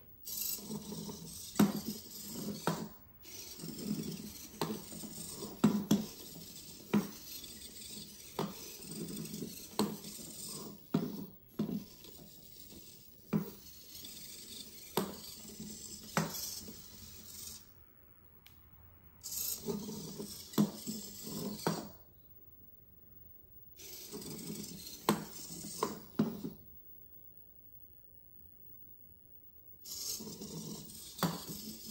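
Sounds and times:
servo motors buzzing and whining: 0.2s - 17.7s, 19.2s - 22.0s, 23.8s - 26.6s, 29.8s - 31.9s.

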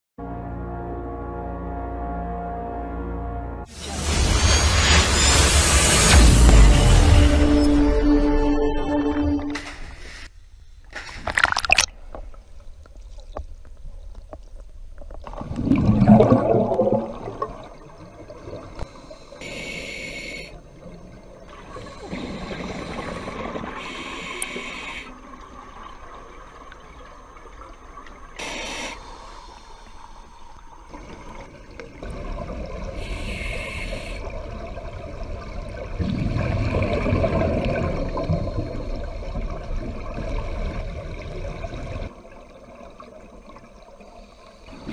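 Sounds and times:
scuba regulator breathing: 9.8s - 11.3s, 18.8s - 20.6s, 21.7s - 25.2s, 28.4s - 31.3s, 32.9s - 34.5s
exhaled air bubbling: 11.1s - 44.9s.

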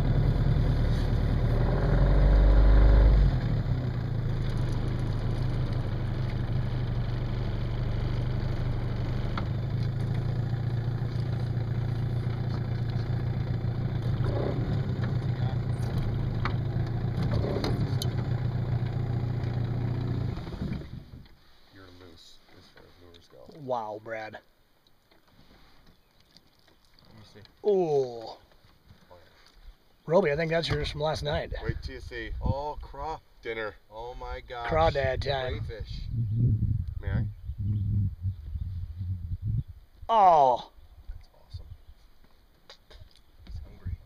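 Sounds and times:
outboard motor running: 0.0s - 21.4s.

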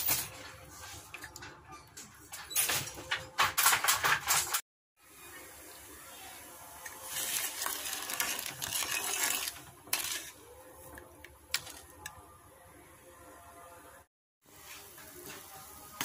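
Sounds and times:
skimmer scraping a steel pan: 6.8s - 10.9s.

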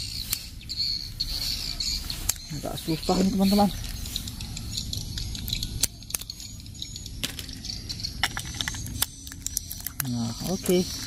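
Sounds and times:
batteries clinking together: 4.7s - 11.0s
batteries clicking into plastic compartment: 7.2s - 10.2s.

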